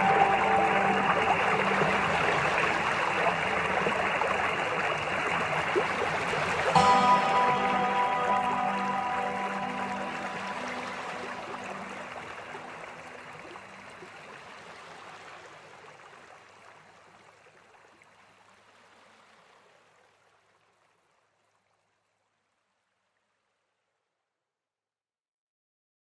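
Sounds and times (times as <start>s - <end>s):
waterfall rushing water: 0.0s - 15.8s.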